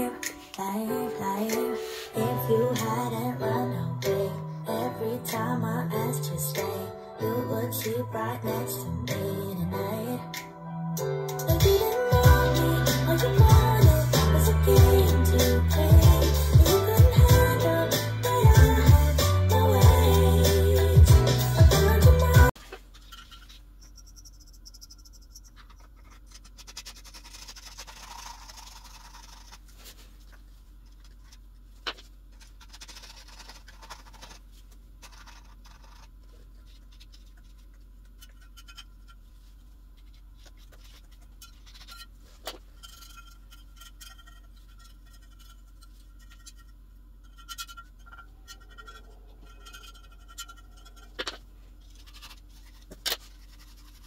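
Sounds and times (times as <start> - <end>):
faint scratching and scraping: 22.6 - 54.0.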